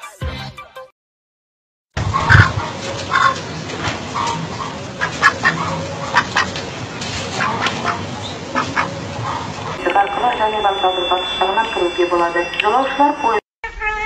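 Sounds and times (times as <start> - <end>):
duck quacking: 2.0 - 6.6, 7.3 - 9.8.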